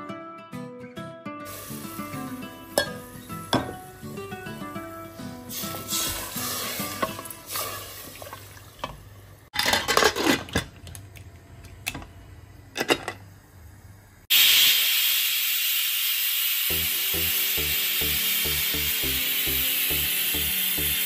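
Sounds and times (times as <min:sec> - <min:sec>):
pressure cooker hissing: 0:01.5 - 0:04.2, 0:05.4 - 0:08.3, 0:14.2 - 0:21.0
metal lid clinking: 0:02.8 - 0:03.8.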